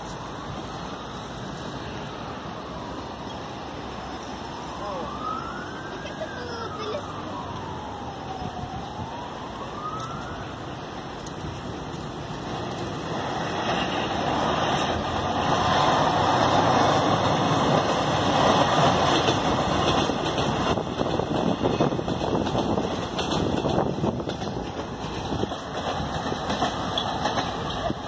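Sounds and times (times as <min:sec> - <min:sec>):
train wheels rumbling on rails: 0:10.9 - 0:28.0.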